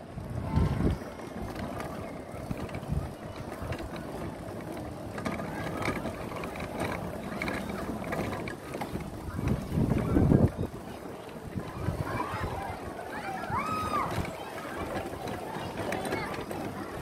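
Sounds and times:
go-kart rumble: 0.0 - 17.0
small mechanical clicks and ticks: 0.8 - 10.7.

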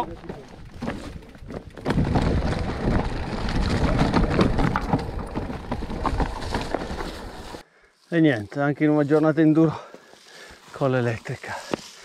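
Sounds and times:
bike tyres clattering over stones: 0.0 - 7.6.

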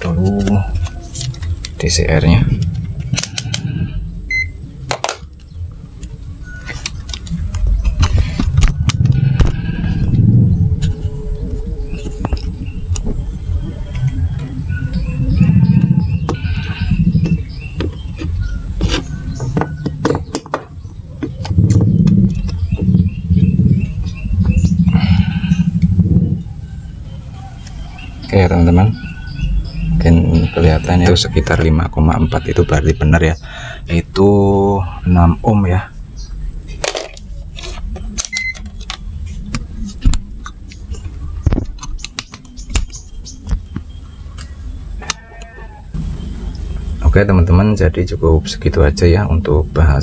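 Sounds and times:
low background rumble: 0.0 - 45.1
multimeter beep: 4.3 - 4.6, 38.3 - 38.6
small bird chirping: 9.9 - 31.6, 40.6 - 47.5.

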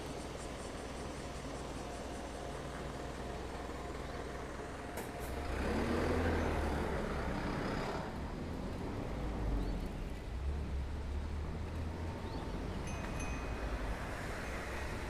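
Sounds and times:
vehicle passing: 5.3 - 9.6.

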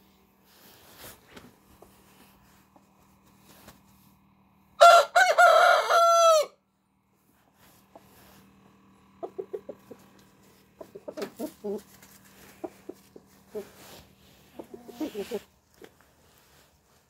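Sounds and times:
rooster crowing: 4.8 - 6.6.

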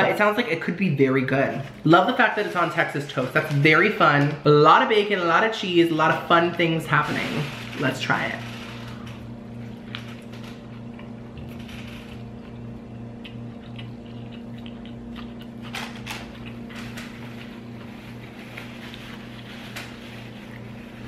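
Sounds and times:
steady low hum: 0.0 - 21.0
person chewing: 8.9 - 21.0.

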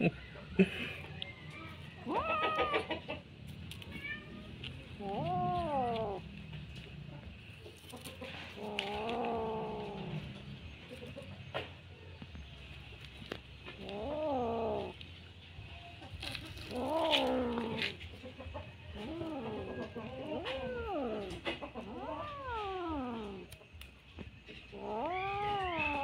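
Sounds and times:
kitten growl-yowling: 2.0 - 3.0, 4.9 - 6.4, 8.6 - 10.5, 13.6 - 15.0, 16.4 - 18.0, 19.0 - 23.6, 24.7 - 26.0.

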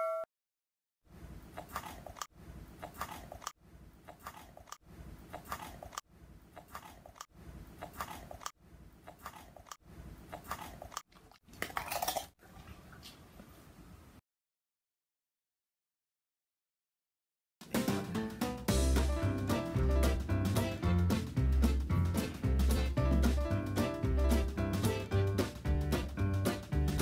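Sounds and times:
dog crunching a cracker: 11.6 - 12.3.

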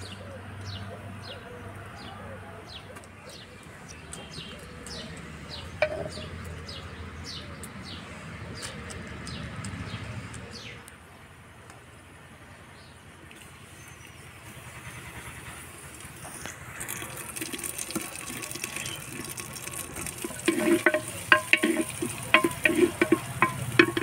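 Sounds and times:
spatula knocking on clay pot: 5.8 - 6.3, 20.2 - 24.0
oil sizzling: 15.8 - 24.0.

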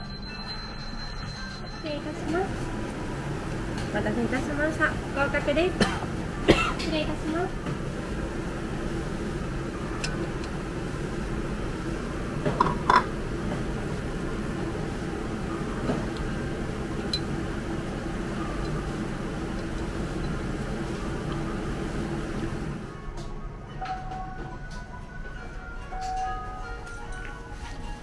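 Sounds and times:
steady machine hum: 0.0 - 28.0.

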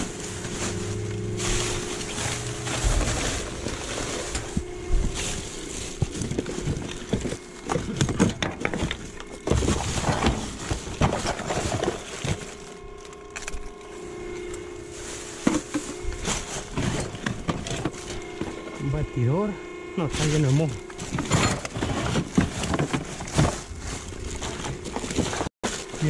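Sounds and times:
plastic bags crinkling: 0.0 - 8.0, 20.2 - 26.0
items knocking: 2.2 - 12.6, 15.4 - 16.0, 20.9 - 26.0.

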